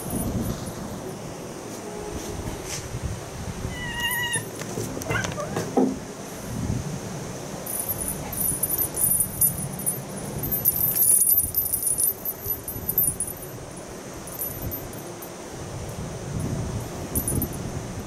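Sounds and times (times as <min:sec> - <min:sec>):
cat toy bell jingling: 0:07.7 - 0:15.3, 0:16.4 - 0:17.7.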